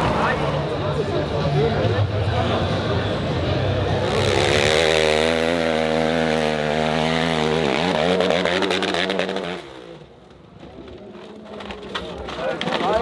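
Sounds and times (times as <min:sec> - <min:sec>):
dirt bike engine revving: 0:03.8 - 0:10.1.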